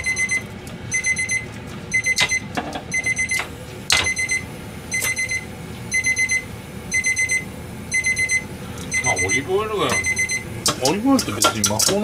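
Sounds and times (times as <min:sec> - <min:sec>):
kitchen timer rapid beeps: 0:00.0 - 0:12.0.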